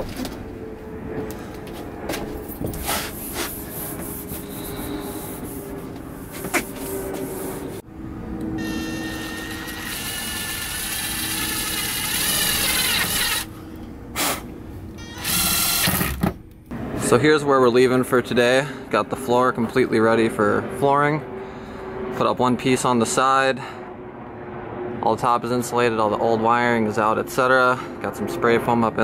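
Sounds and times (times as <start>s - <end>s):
impact driver whining: 8.6s - 13.5s, 15.0s - 16.4s.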